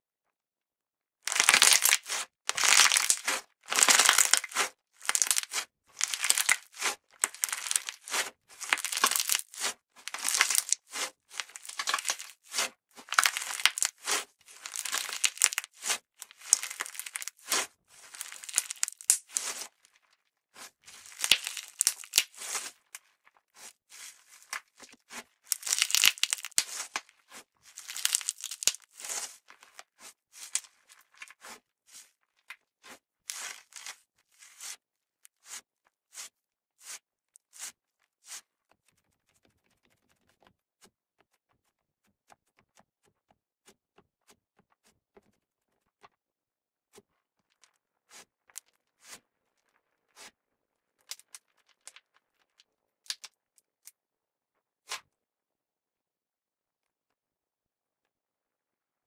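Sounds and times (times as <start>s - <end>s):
wet slime squishes: 1.3s - 34.8s.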